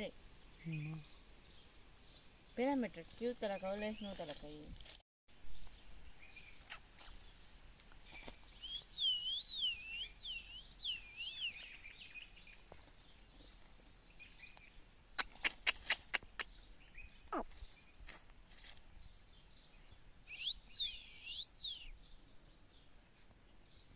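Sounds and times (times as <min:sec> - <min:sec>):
sharp clicks: 0:15.2 - 0:16.5.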